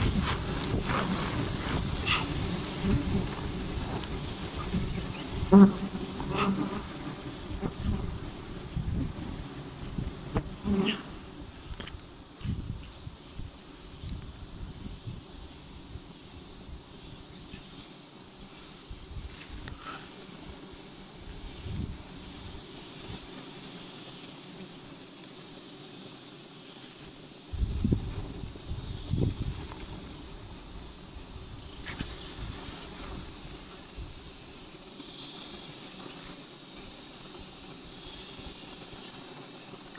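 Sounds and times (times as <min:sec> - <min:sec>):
bees buzzing: 0:00.0 - 0:12.4, 0:13.0 - 0:39.9
single bee buzzing close by: 0:00.0 - 0:13.2
steady background hiss: 0:00.0 - 0:39.9.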